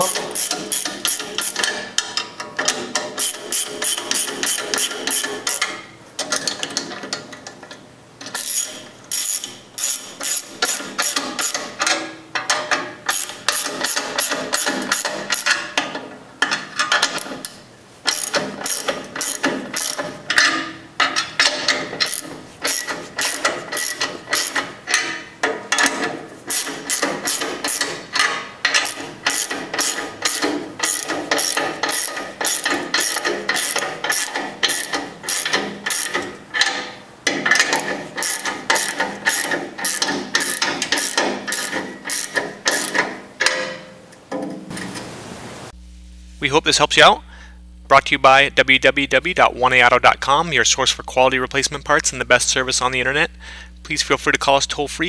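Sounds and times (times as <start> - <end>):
hand ratchet clicking: 0.0 - 7.6, 8.2 - 43.6.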